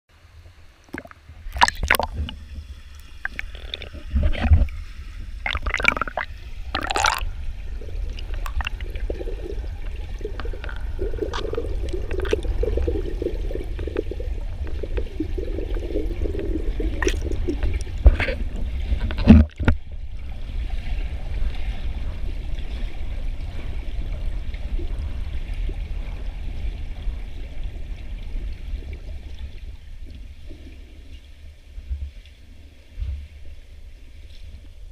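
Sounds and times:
deep underwater rumble: 0.2s - 34.9s
water splashes: 0.8s - 34.9s
hard knocks underwater: 1.0s - 4.8s, 8.1s - 19.9s.

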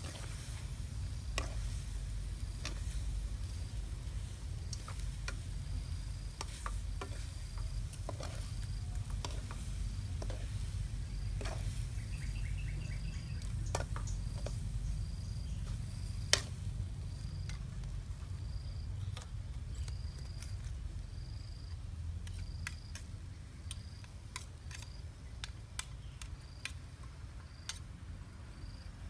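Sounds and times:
metal spatula scraping wok: 0.0s - 15.2s
low steady rumble: 0.0s - 19.9s
insect chirping: 0.0s - 25.4s, 26.0s - 29.0s.

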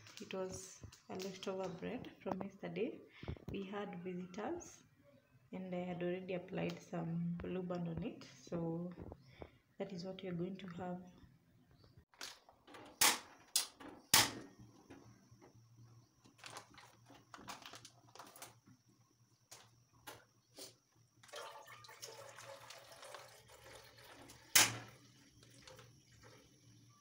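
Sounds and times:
milk pouring into a pot: 21.2s - 27.0s.

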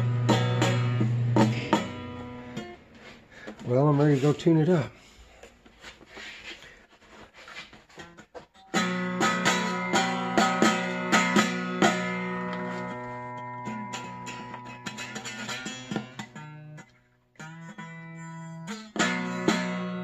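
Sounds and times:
dulcimer strumming with drone: 0.0s - 2.9s, 8.0s - 20.0s.

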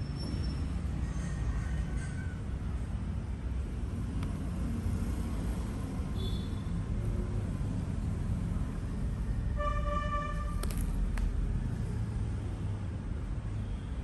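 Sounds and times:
horn-like tone: 9.6s - 10.5s.

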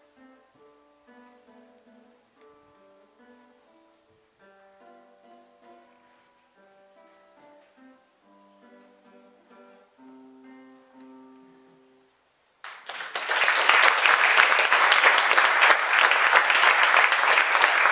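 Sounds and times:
classical guitar plucking: 0.0s - 12.3s
audience applauding: 12.6s - 17.9s.

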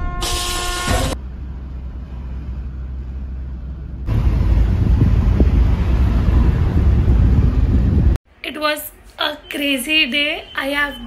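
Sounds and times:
steady low rumble: 1.2s - 8.2s
wind buffeting microphone: 4.1s - 8.2s.

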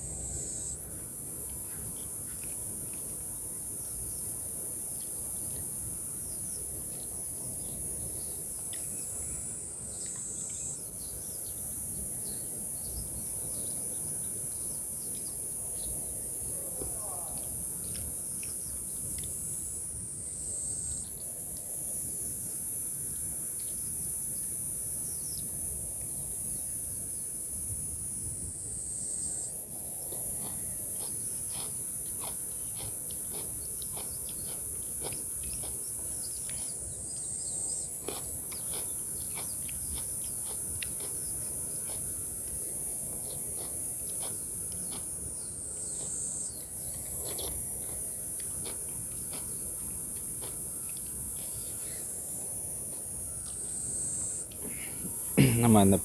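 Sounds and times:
high-pitched insect drone: 0.0s - 56.0s
clicks and smacks of eating: 30.4s - 36.7s, 38.0s - 42.1s, 47.2s - 51.2s.

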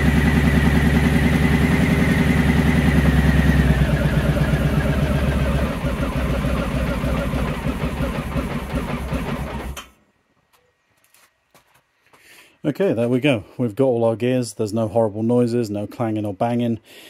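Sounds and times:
motorcycle engine running: 0.0s - 9.8s.

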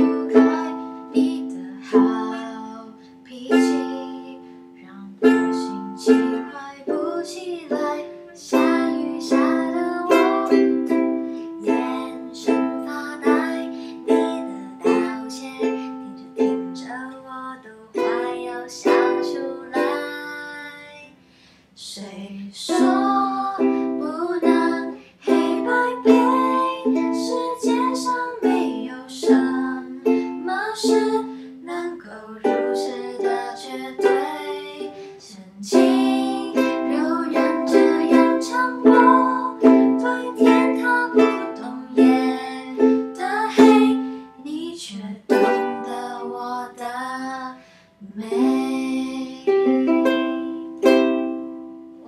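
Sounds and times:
ukuleles strummed: 0.0s - 21.0s, 22.6s - 52.0s
two people singing pop song: 0.0s - 21.2s, 21.8s - 50.0s.

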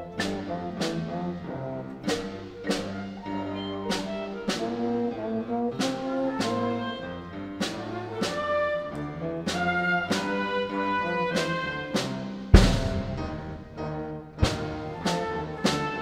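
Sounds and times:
wind and string instruments: 0.0s - 16.0s
sharp accented percussion strikes: 12.5s - 13.9s.

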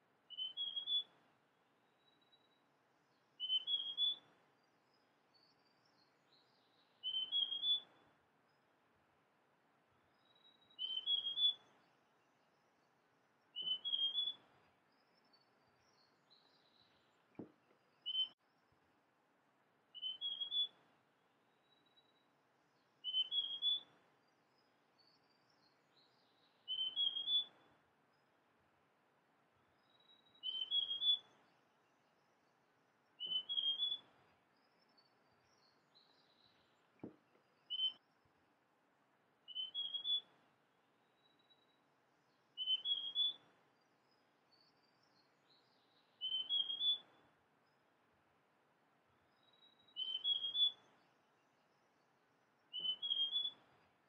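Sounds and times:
faint bird twittering: 0.3s - 8.7s, 10.0s - 18.9s, 19.9s - 28.5s, 29.6s - 38.5s, 39.4s - 48.1s, 49.1s - 54.0s
bird whistling rising notes: 7.0s - 7.9s, 10.8s - 11.6s, 13.6s - 14.4s, 20.0s - 20.8s, 23.0s - 23.9s, 26.7s - 27.5s, 30.4s - 31.3s, 33.2s - 34.1s, 39.5s - 40.3s, 42.6s - 43.4s, 46.2s - 47.0s, 49.9s - 50.8s, 52.7s - 53.6s.

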